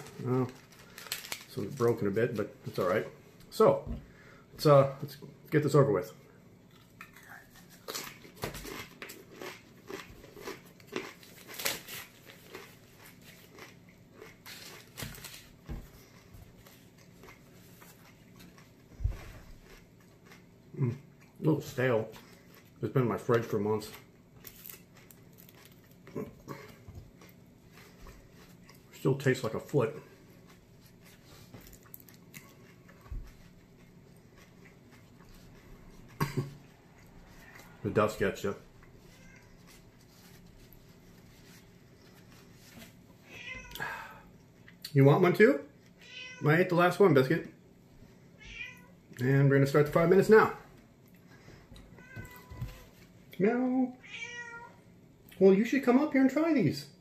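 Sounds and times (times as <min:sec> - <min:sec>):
chewing crunchy chip: 0:00.0 - 0:02.2, 0:06.7 - 0:37.8.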